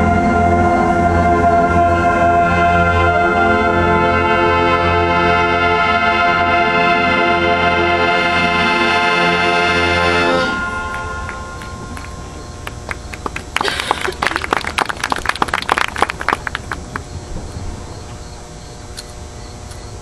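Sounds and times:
brass band chord: 0:00.0 - 0:13.1
crowd clapping and cheering: 0:10.8 - 0:17.2.

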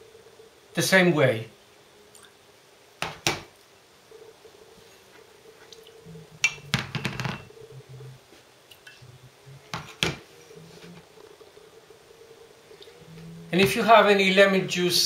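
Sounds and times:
ceramic ramekins clinking: 0:06.4 - 0:07.5.

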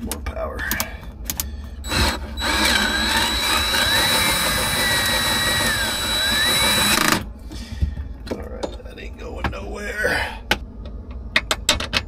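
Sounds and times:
power tool motor whining: 0:01.8 - 0:07.2.

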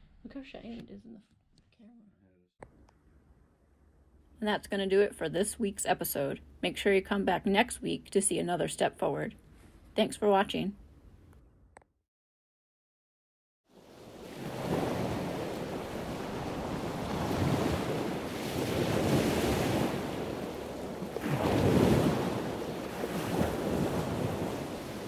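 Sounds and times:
ocean waves washing in: 0:13.7 - 0:25.0.

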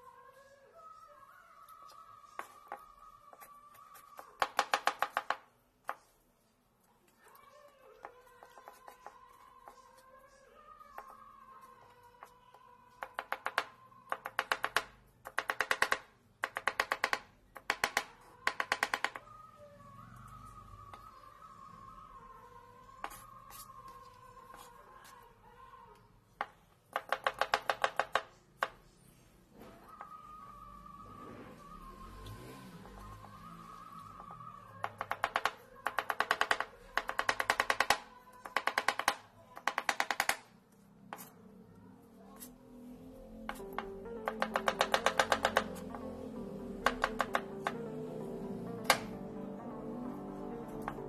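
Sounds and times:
background music: 0:29.8 - 0:35.4, 0:42.6 - 0:51.0
knife chopping on plastic board: 0:34.8 - 0:40.4, 0:43.5 - 0:46.0, 0:46.8 - 0:47.9.

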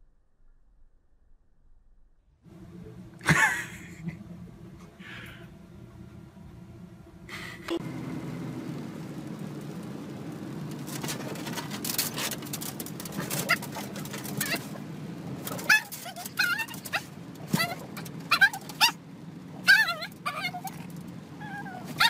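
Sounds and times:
car road noise: 0:02.5 - 0:22.0
dog whimpering: 0:13.2 - 0:14.8, 0:15.5 - 0:19.0, 0:19.6 - 0:22.0.

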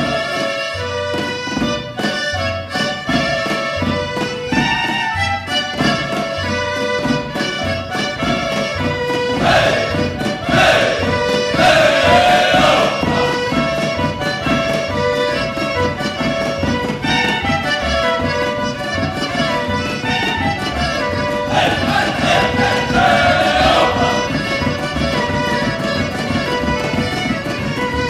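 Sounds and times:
folk dance music: 0:00.0 - 0:28.0
voices calling out: 0:09.4 - 0:13.3, 0:21.5 - 0:24.5.

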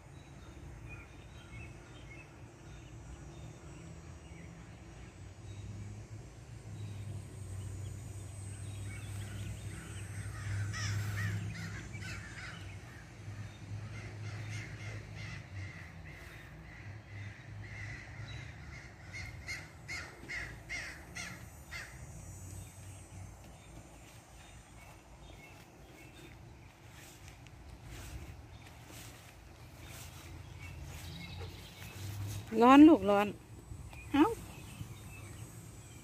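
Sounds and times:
low hum: 0:00.0 - 0:36.0
crow cawing: 0:09.8 - 0:22.0.

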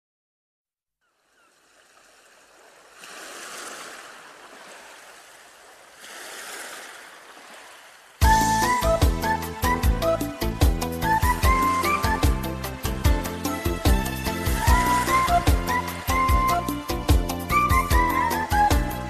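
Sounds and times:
sea waves washing ashore: 0:01.2 - 0:08.5, 0:11.2 - 0:18.5
song music: 0:08.2 - 0:19.0.

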